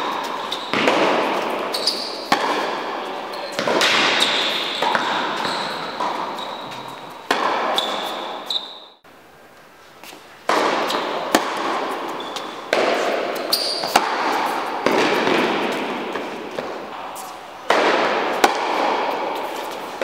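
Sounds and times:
tennis ball struck by rackets: 0.0s - 8.6s, 10.4s - 20.0s
tennis ball bouncing on court: 0.0s - 8.7s, 10.0s - 20.0s
room noise hiss: 5.8s - 20.0s.

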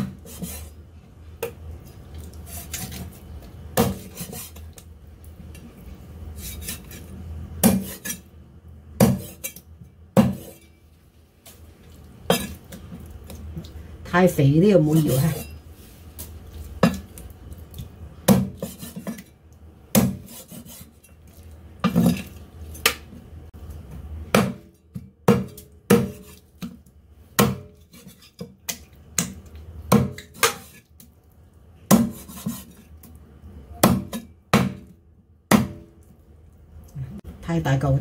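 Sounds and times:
cleaver chopping on wooden block: 25.3s - 26.2s, 27.4s - 27.7s, 33.8s - 34.9s, 35.5s - 35.8s.

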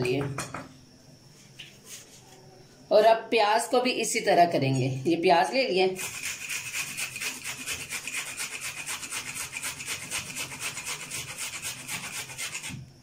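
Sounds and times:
onion grated on metal grater: 5.9s - 12.8s.

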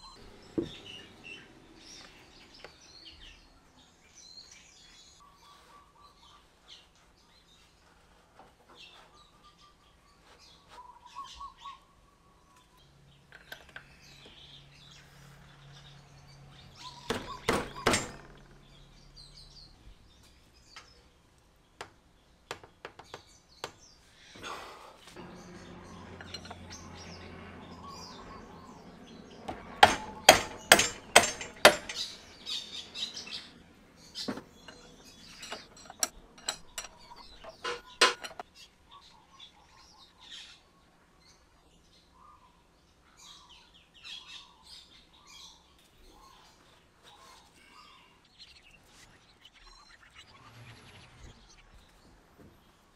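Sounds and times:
birds chirping faintly: 0.0s - 52.9s
mallet knocking on wrench: 29.5s - 32.0s.

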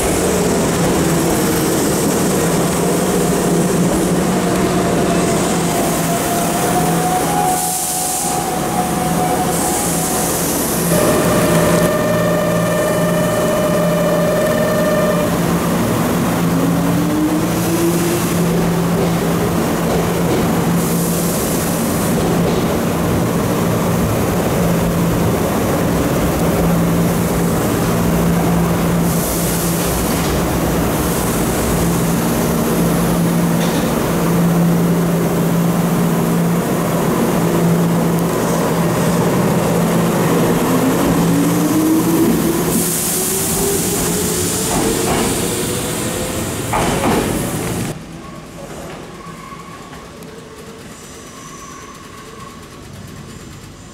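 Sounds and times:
electric train hum: 0.0s - 48.2s
train motor whine: 2.7s - 19.3s.

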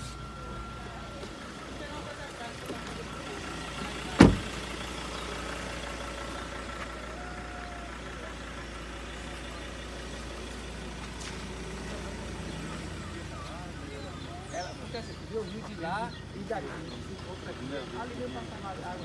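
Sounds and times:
car engine idling: 0.0s - 19.0s
loud thud: 4.2s - 4.5s.

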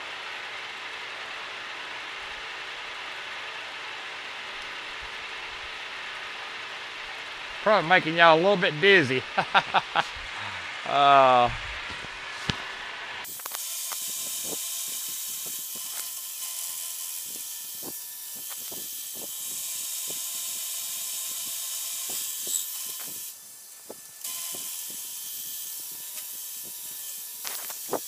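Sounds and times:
end mill cutting metal: 12.0s - 28.0s
ticks of metal chips flying: 13.3s - 19.4s, 26.1s - 28.0s.

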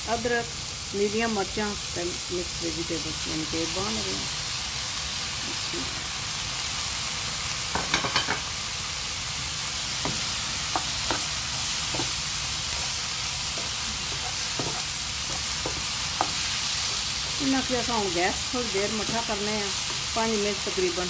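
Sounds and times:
vegetables sizzling in a frying pan: 0.0s - 21.0s
spatula knocking against pan: 11.9s - 12.2s.

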